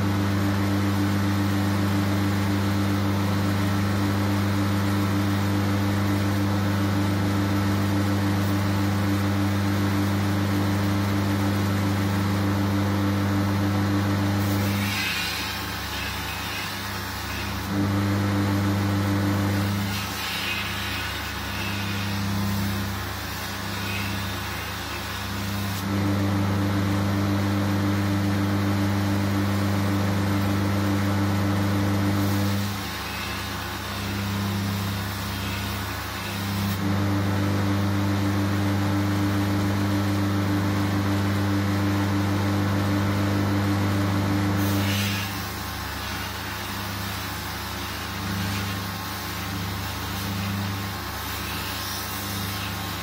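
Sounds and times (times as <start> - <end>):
motor hum: 0.0 - 53.0
belt grinder grinding steel: 14.4 - 17.8, 19.5 - 25.7, 32.2 - 36.8.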